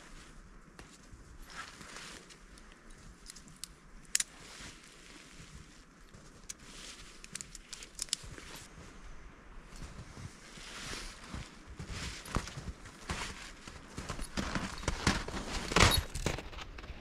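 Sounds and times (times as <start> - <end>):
footsteps crunching in snow: 0.0 - 3.2, 3.9 - 17.0
branches rustling and snapping: 0.0 - 8.8.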